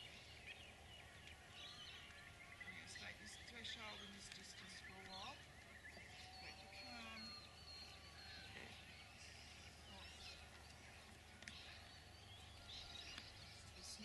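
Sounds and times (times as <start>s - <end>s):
faint bird chirps: 0.0s - 14.0s
low steady hum: 0.0s - 14.0s.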